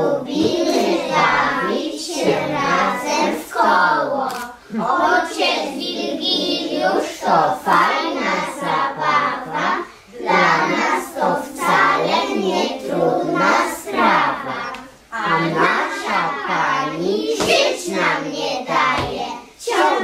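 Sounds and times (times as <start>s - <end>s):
children singing in unison: 0.0s - 20.0s.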